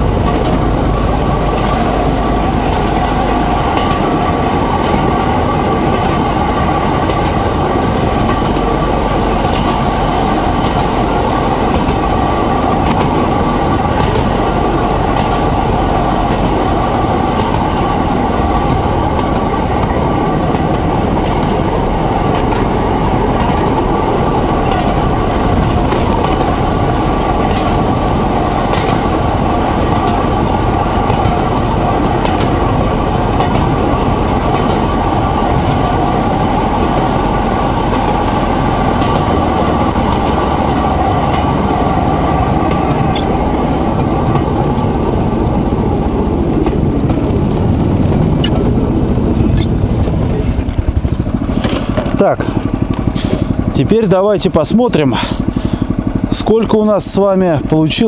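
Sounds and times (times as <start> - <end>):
small engine droning: 0.0 - 58.0
wheels on rails: 0.0 - 58.0.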